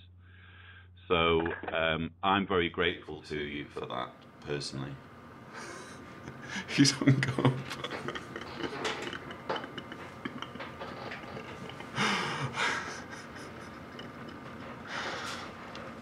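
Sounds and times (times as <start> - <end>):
man laughing quietly: 5.5 - 15.5.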